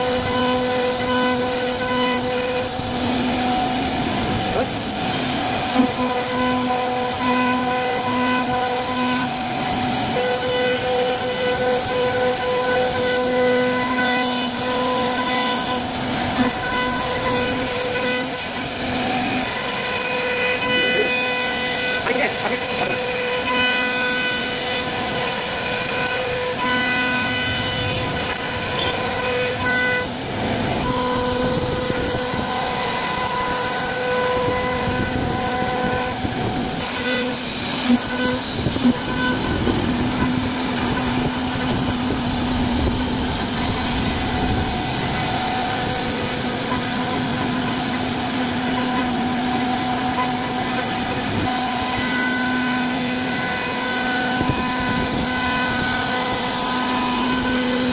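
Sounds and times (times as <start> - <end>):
router bit cutting wood: 0.0 - 57.9
router spindle whining: 0.0 - 57.9.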